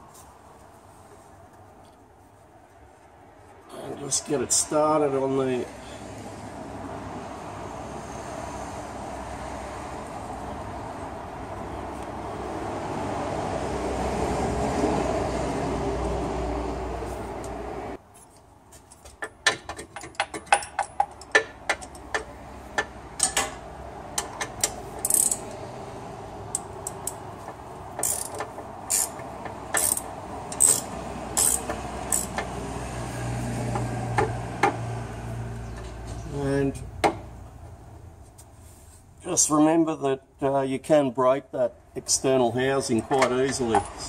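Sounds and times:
ratchet wrench clicking: 0:24.2 - 0:25.5, 0:28.0 - 0:32.5.

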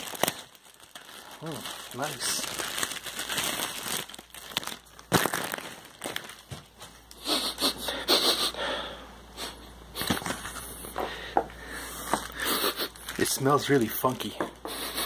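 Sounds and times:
plastic wrapping crinkling: 0:00.0 - 0:07.2
person sniffing: 0:07.2 - 0:10.1, 0:10.7 - 0:13.0.

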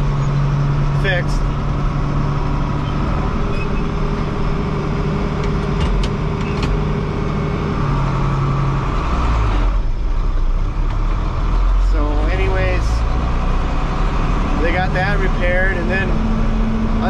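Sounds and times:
tractor engine idling: 0:00.0 - 0:13.0.

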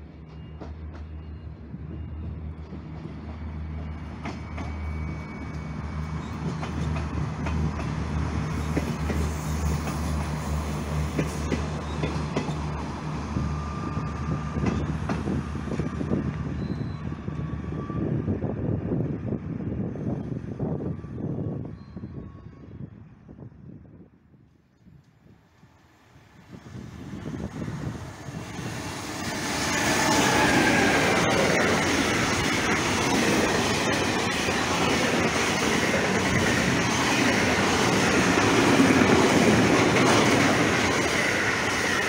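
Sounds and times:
train wheels clacking: 0:06.3 - 0:12.8, 0:29.1 - 0:42.0.

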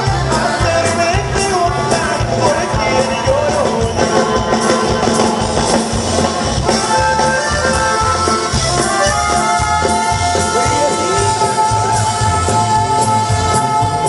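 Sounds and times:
bass and drum beat: 0:00.0 - 0:14.0
guitar: 0:00.0 - 0:14.0.

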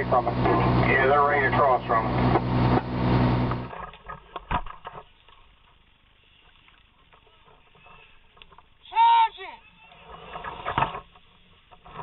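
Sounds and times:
fire engine running: 0:00.0 - 0:03.8.

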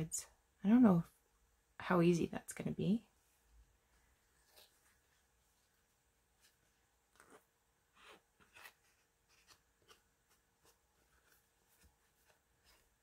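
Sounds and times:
fabric rustling: 0:03.2 - 0:13.0.

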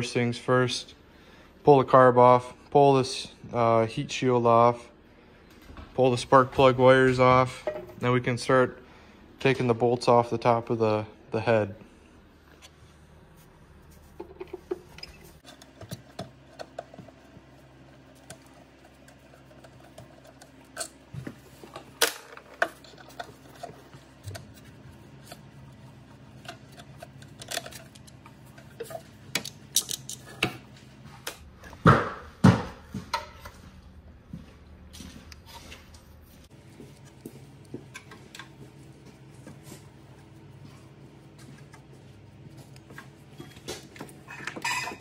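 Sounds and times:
hand tools clinking on metal: 0:44.2 - 0:45.0.

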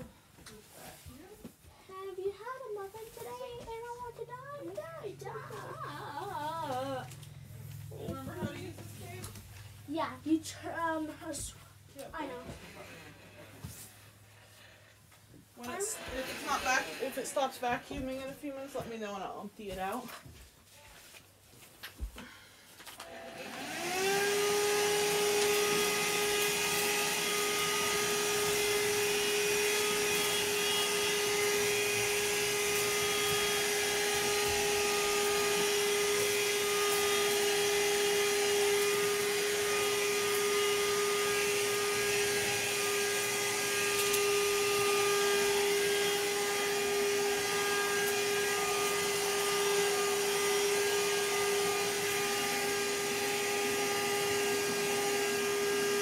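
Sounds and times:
vacuum cleaner motor whine: 0:05.2 - 0:09.7, 0:12.0 - 0:14.7, 0:15.6 - 0:19.2, 0:23.0 - 0:56.0.

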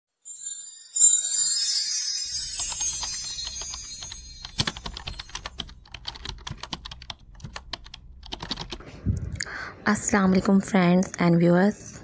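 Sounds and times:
bright chime: 0:00.2 - 0:05.8.

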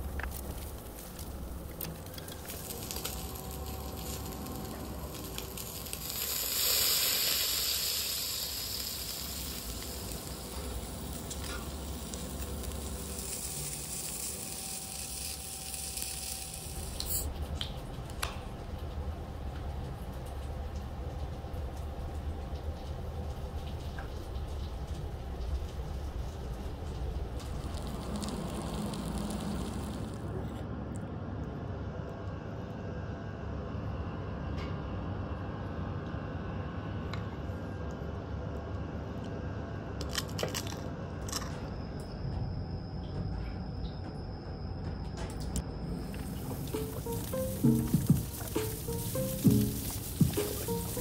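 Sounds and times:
low hum: 0:00.0 - 0:06.5
meat sizzling on grill: 0:02.2 - 0:17.3, 0:27.2 - 0:30.2, 0:46.1 - 0:51.0.

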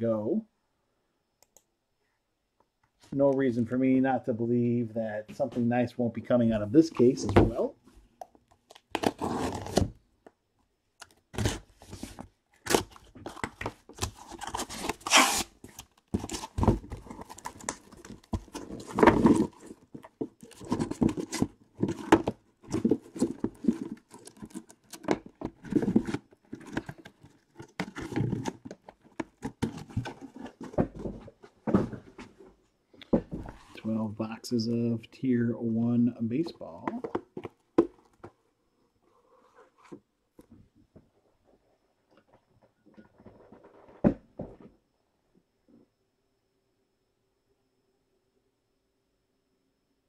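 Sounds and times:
cardboard tearing: 0:08.9 - 0:09.9, 0:12.6 - 0:19.8.

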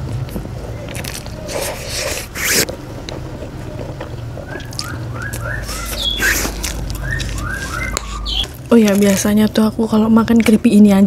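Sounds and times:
slurping and chewing noodles: 0:00.7 - 0:02.8, 0:03.4 - 0:09.5.

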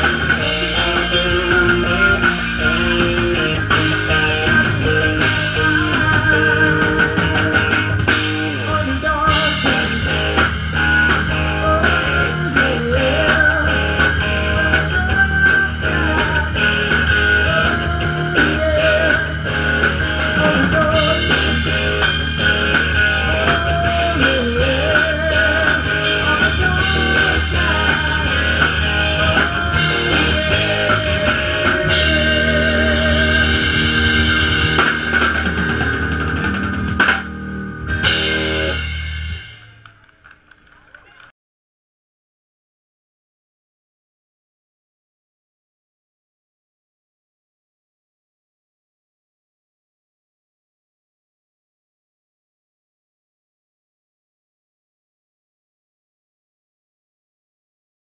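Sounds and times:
rock band playing: 0:00.0 - 0:40.9.

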